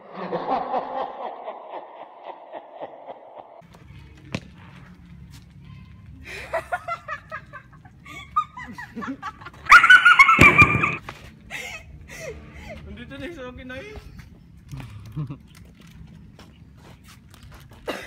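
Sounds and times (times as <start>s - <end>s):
men laughing: 0.0s - 3.6s, 6.2s - 12.8s, 14.8s - 15.5s.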